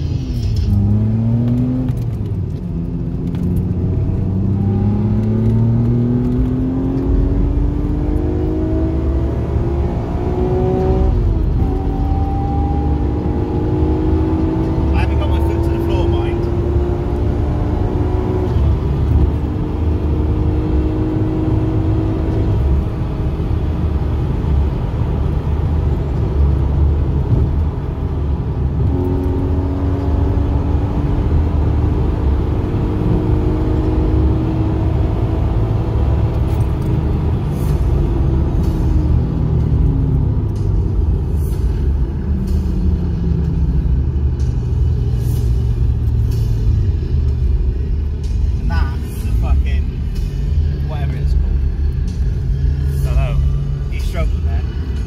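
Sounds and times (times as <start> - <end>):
car engine accelerating: 0.0 - 55.0
road and tyre rumble: 0.0 - 55.0.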